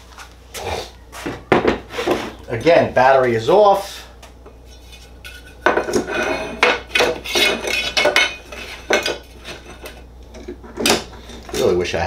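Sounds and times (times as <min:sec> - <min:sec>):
metal clattering on workbench: 0:05.2 - 0:11.7.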